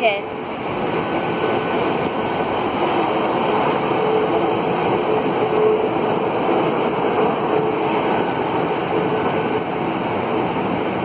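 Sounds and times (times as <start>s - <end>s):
train wheels and diesel engine rumble: 0.0s - 11.0s.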